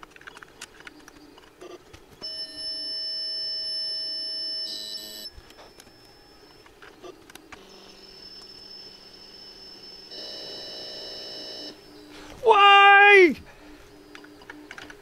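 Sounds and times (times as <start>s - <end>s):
steady buzzing computer tone: 1.6s - 12.1s
steady high tone: 7.6s - 13.4s.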